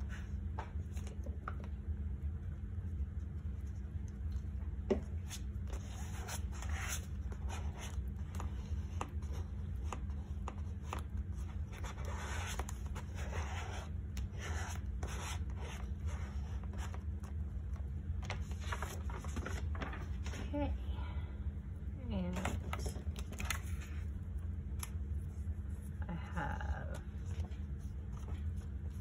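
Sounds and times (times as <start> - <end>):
steady low hum: 0.0 - 29.0
paper rustling and rubbing: 5.1 - 20.6, 22.4 - 26.1, 27.0 - 29.0.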